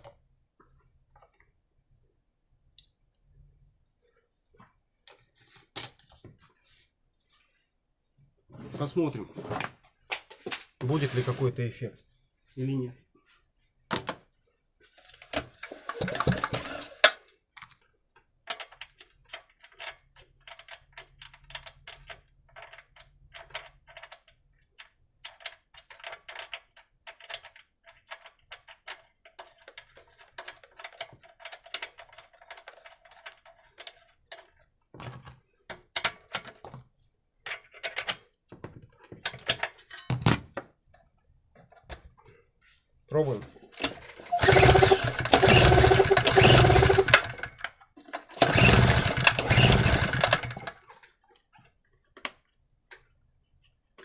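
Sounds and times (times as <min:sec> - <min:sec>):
tools and metal parts clicking: 0:43.8 - 0:51.0.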